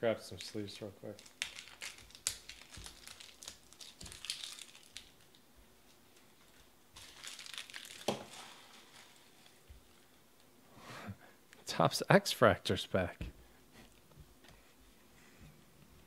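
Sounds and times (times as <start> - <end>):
plastic sleeves crinkling: 0.3 - 10.2.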